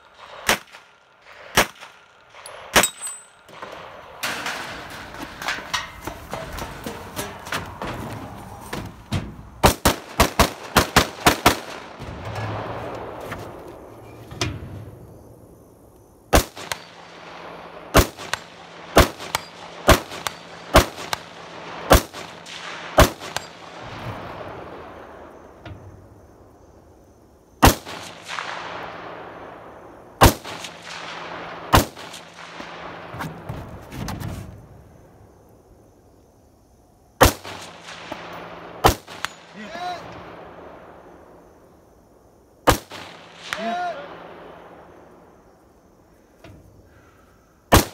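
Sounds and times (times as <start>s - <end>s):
rifle gunshots with echo: 0.0s - 5.0s, 9.6s - 13.2s, 16.3s - 25.6s, 27.6s - 33.1s, 37.2s - 41.5s, 42.7s - 45.3s.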